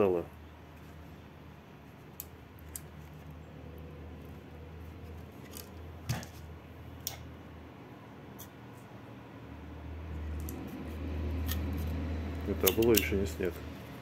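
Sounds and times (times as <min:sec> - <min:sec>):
plastic parts clicking and tapping: 0:12.6 - 0:13.1.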